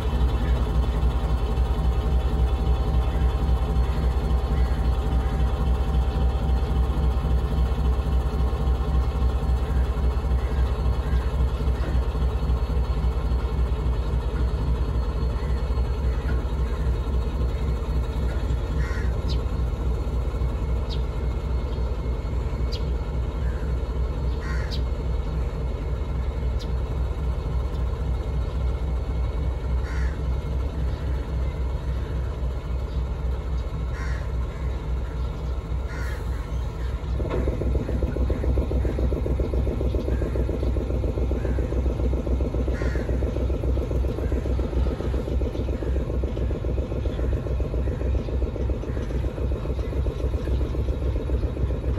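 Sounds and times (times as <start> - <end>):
diesel locomotive rumbling: 0.0 - 51.9
crows cawing: 2.4 - 7.9, 8.7 - 13.2, 15.2 - 19.8, 23.4 - 25.1, 29.6 - 31.2, 33.8 - 50.3.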